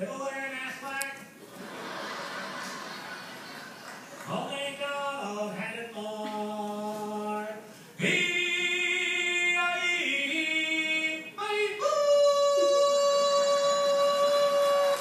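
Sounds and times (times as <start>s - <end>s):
voices singing a cappella: 4.7s - 15.0s.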